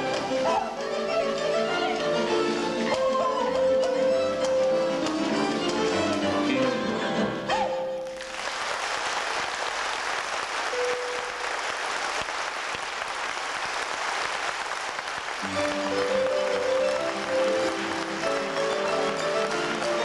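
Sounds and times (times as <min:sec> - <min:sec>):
audience applauding: 0:08.0 - 0:20.0
band music: 0:10.7 - 0:11.7, 0:15.4 - 0:20.0.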